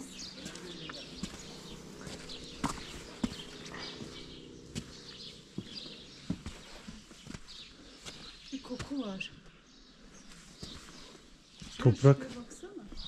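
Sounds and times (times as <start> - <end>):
footsteps: 0.0 - 9.0
faint birds chirping: 0.0 - 13.0.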